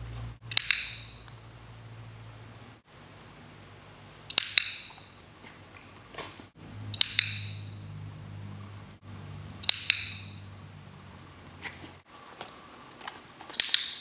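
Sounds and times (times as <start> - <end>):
dog-training clicker double clicks: 0.5 - 1.2, 4.3 - 4.9, 6.9 - 7.6, 9.6 - 10.4.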